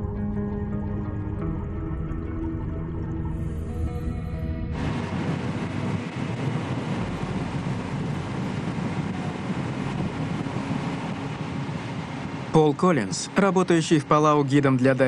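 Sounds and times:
music: 0:00.0 - 0:04.8
wind and water rushing: 0:04.7 - 0:15.0
motorboat engines at speed: 0:04.8 - 0:15.0.

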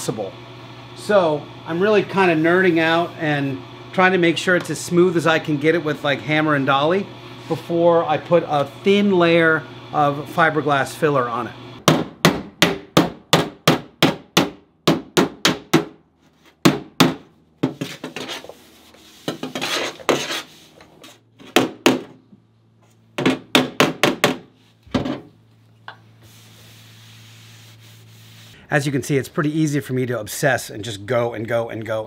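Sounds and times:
rubbing on metal: 0:17.7 - 0:20.8, 0:26.2 - 0:28.6.

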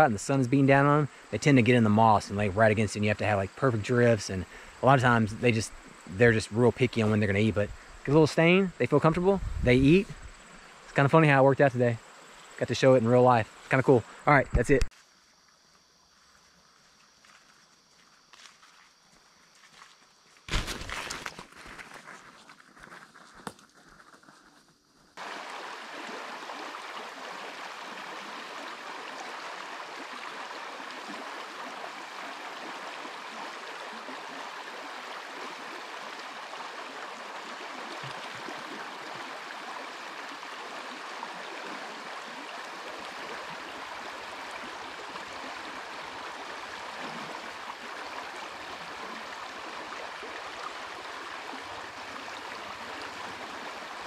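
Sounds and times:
stream rushing over rocks: 0:25.2 - 0:54.0.

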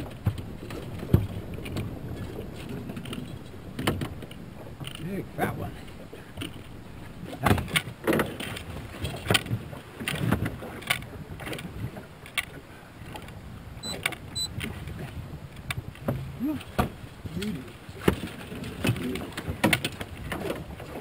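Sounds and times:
knocks in aluminum boat: 0:00.0 - 0:05.0, 0:07.3 - 0:10.6.

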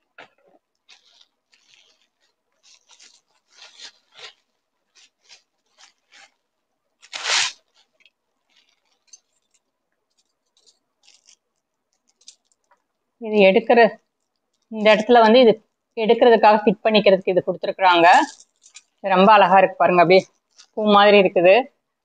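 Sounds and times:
plastic wrapping crinkling: 0:00.0 - 0:13.2, 0:14.0 - 0:15.9, 0:17.9 - 0:21.0
loud plastic crackle: 0:00.1 - 0:12.8, 0:18.1 - 0:19.1, 0:20.2 - 0:20.8.

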